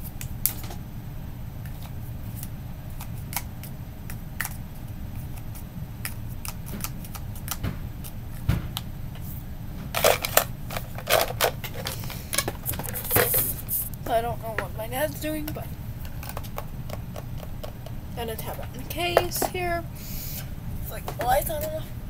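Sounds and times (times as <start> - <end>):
steady low hum: 0.0 - 22.0
pens clicking in plastic cup: 3.0 - 4.6, 10.0 - 13.5, 16.0 - 19.6.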